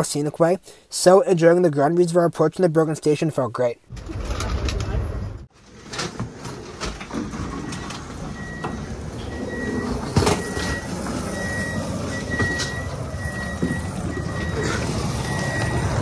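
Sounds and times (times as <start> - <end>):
rumble and clatter: 3.9 - 11.8
electronic warning beeps: 7.6 - 16.0.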